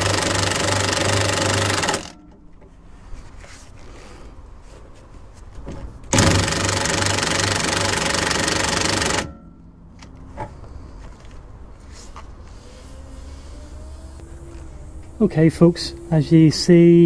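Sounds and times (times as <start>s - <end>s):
impact gun hammering: 6.1s - 9.7s.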